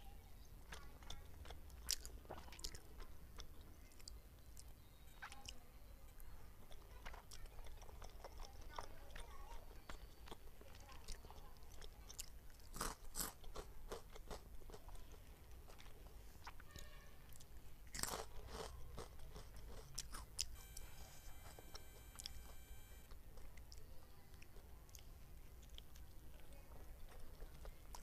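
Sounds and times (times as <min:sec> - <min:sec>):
crunching and chewing snacks: 0:00.5 - 0:28.0
faint high tone: 0:20.6 - 0:23.1.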